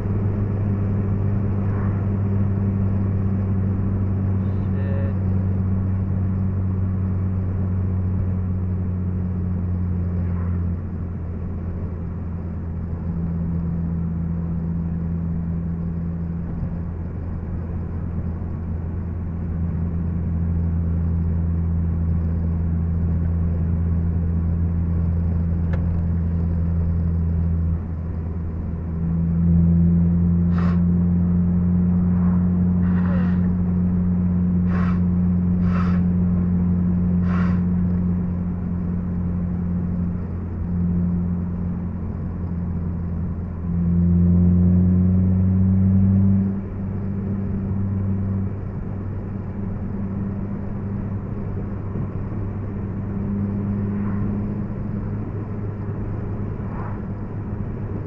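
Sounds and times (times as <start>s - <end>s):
car engine droning in cabin: 0.0s - 58.0s.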